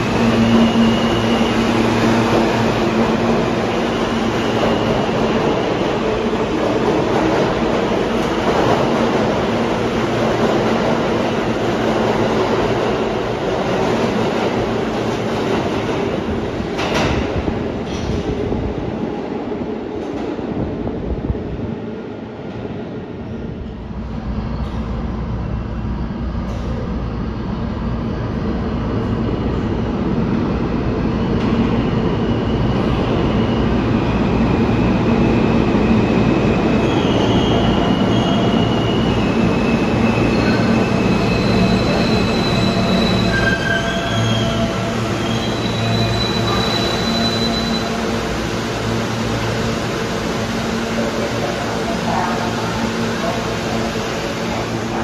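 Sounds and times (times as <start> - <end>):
train wheels rumbling on rail: 0.0 - 55.0
high-pitched brake squeal: 36.8 - 48.1.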